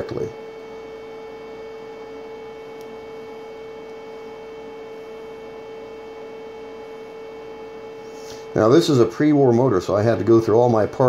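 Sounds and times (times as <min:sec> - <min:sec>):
electrical hum: 0:00.0 - 0:11.0.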